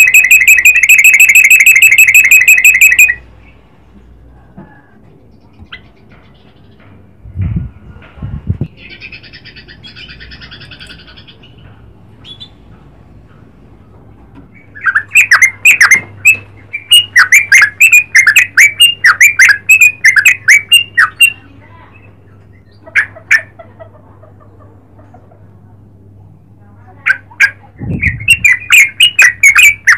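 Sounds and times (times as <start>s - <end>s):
bulbul calling: 0.0s - 3.2s, 8.8s - 12.6s, 14.6s - 21.5s, 27.4s - 29.9s.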